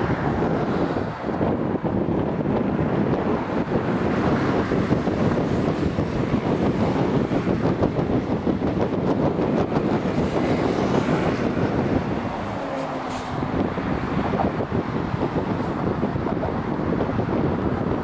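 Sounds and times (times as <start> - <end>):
city bus: 0.0 - 18.0
passing cars rumbling: 0.0 - 18.0
train crossing on rail track: 0.0 - 18.0
motorcycle: 1.4 - 12.5.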